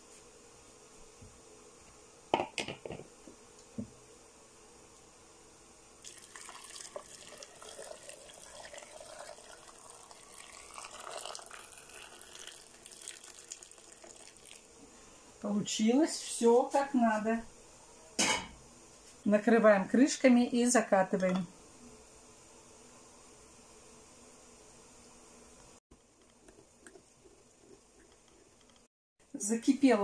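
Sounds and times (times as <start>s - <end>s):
liquid pouring into jar: 6.0s - 14.7s, 26.3s - 28.8s.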